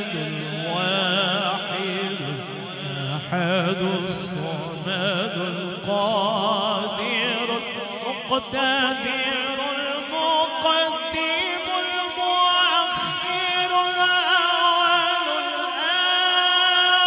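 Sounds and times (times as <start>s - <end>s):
man singing into microphone: 0.0s - 17.0s.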